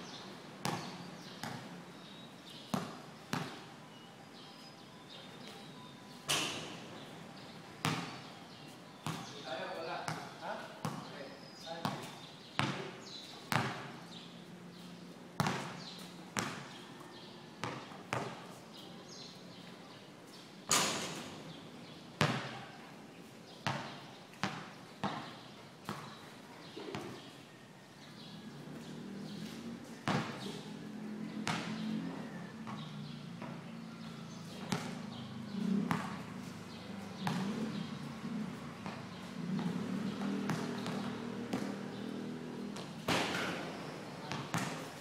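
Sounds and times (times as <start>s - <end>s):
basketball bouncing on concrete: 0.6s - 1.8s, 2.7s - 3.6s, 7.8s - 8.3s, 9.0s - 9.3s, 10.1s - 11.1s, 11.8s - 14.0s, 15.4s - 16.8s, 17.6s - 18.5s, 22.2s - 22.6s, 23.6s - 26.2s, 30.0s - 30.5s, 31.4s - 31.8s, 34.5s - 36.2s, 36.9s - 37.9s, 38.8s - 44.9s.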